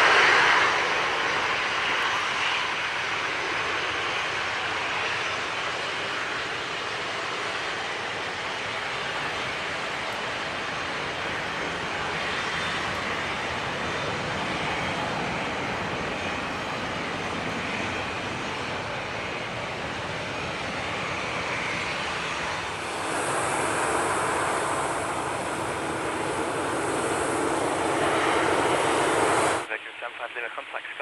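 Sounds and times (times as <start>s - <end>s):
jet engines running: 0.0s - 31.0s.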